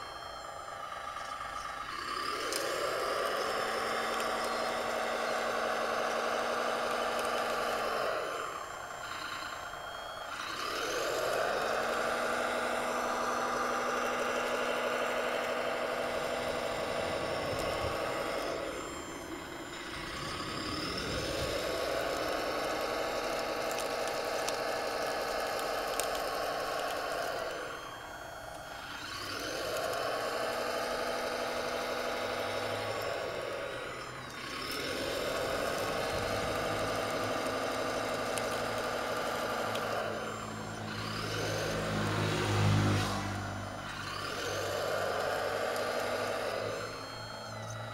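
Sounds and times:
model loader drive whine: 0.0 - 47.9.

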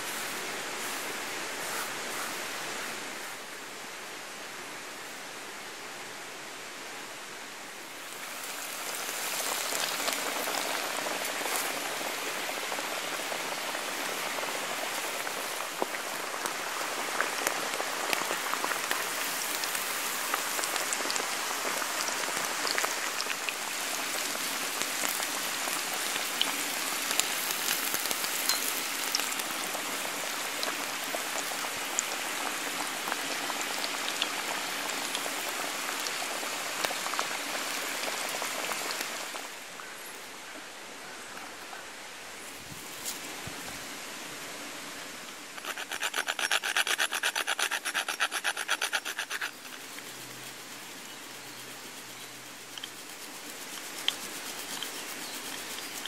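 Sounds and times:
meat sizzling in hot oil: 8.3 - 39.0.

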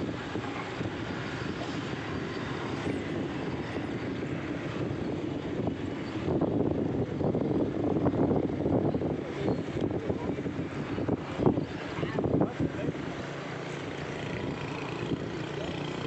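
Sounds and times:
dull rumble: 0.0 - 16.0
wind on microphone: 0.0 - 16.0.

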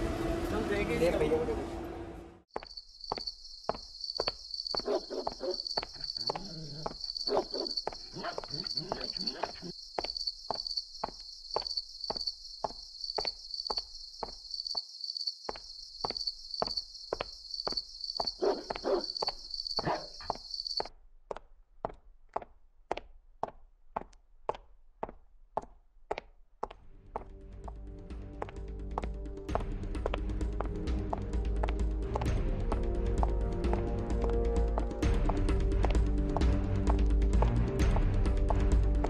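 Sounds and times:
footsteps walking: 2.5 - 14.8, 15.5 - 39.0
crickets chirping: 2.5 - 20.9.

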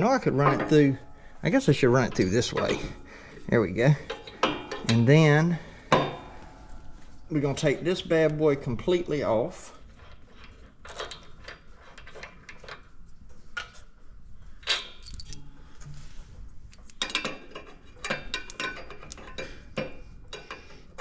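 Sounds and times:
wrench clinking on metal: 14.6 - 15.5, 16.7 - 20.6.

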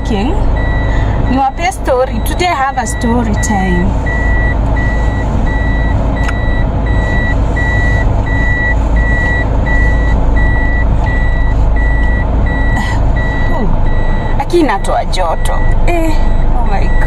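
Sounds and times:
low engine hum: 0.0 - 17.0
reverse warning buzzer beeping: 0.0 - 17.0.

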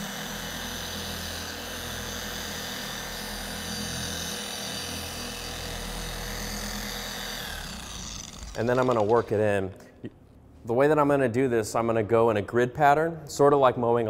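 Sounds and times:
car polisher running: 0.0 - 9.4.

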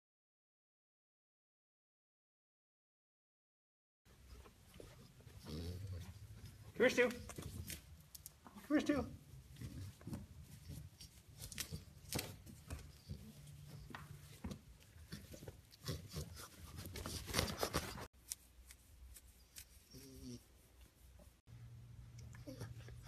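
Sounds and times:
dog claws clicking on carpet: 9.5 - 19.8.

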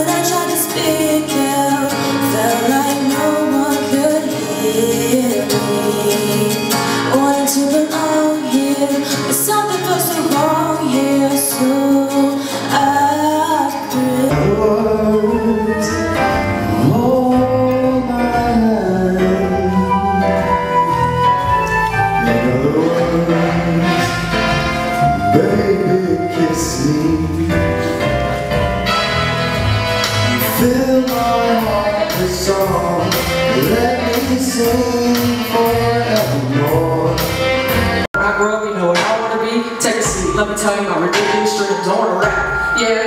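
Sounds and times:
woman singing a slow ballad: 0.0 - 20.0
backing track with deep bass: 0.0 - 43.0
recorded accompaniment music: 0.0 - 43.0.

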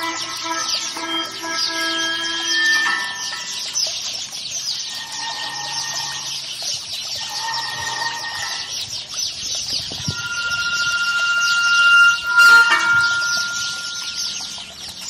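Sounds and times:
held tones: 0.0 - 4.0, 7.2 - 8.8, 9.9 - 14.7.

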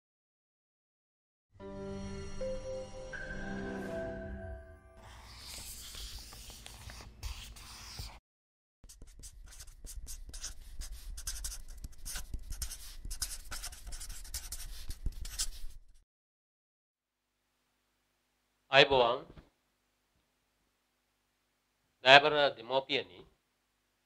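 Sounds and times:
pen scratching on paper: 5.0 - 8.2, 8.8 - 16.0.

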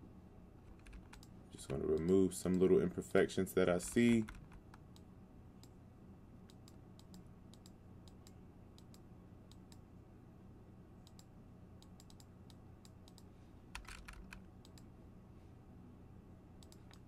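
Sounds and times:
faint steady hum: 0.0 - 17.0
computer mouse clicks: 0.7 - 2.2, 6.5 - 9.8, 11.0 - 14.9, 16.6 - 17.0.

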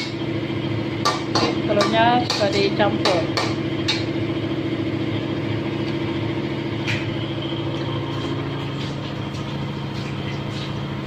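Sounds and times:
generator engine hum: 0.0 - 11.0.

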